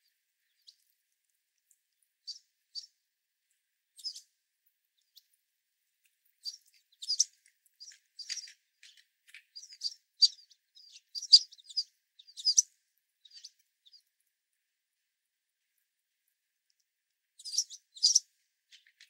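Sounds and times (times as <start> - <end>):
sparrows chipping: 0.0 - 0.9, 2.2 - 3.0, 3.9 - 4.3, 6.2 - 14.2, 17.4 - 19.0.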